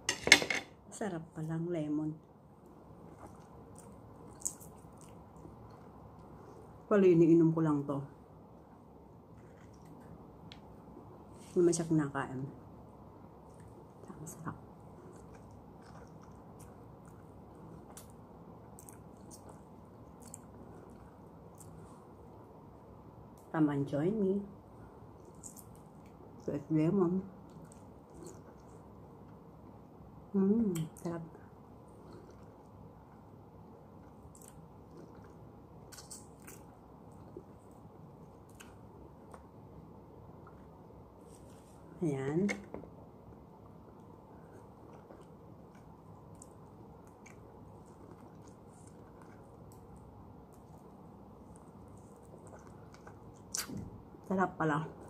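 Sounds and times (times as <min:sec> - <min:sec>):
low steady background noise: 0:00.0 - 0:55.0
chewing lemon: 0:14.8 - 0:22.0, 0:27.4 - 0:29.4, 0:33.9 - 0:39.5, 0:43.6 - 0:54.3
wet mouth clicks and smacks: 0:52.4 - 0:53.9.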